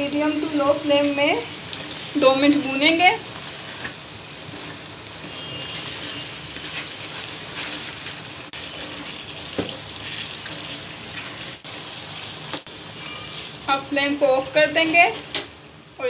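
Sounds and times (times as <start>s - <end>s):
gravy sizzling in a pan: 0.0s - 16.0s
spatula stirring: 1.6s - 11.6s.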